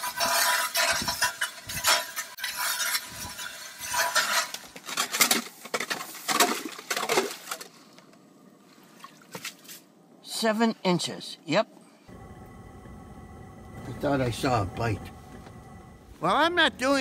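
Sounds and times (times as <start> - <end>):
ice auger scraping through ice: 0.0 - 5.2.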